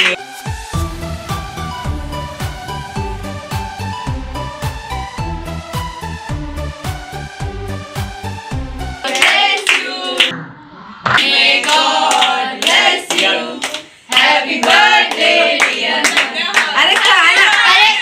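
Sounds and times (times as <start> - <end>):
people clapping hands: 0.0 - 0.2, 9.0 - 10.3, 11.1 - 18.0
electronic dance beat: 0.0 - 10.4
group of people singing: 9.0 - 10.3, 11.0 - 16.8.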